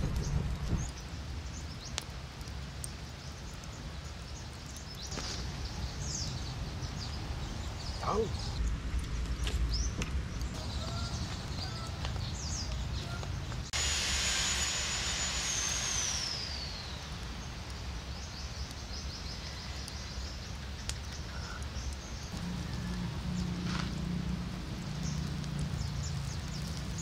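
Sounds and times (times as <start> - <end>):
high hissing buzz: 13.5 - 18.8.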